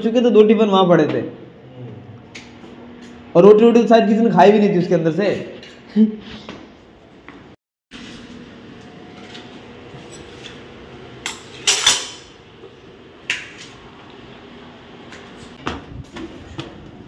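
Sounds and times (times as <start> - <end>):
steel utensils clinking: 11.2 - 12.3.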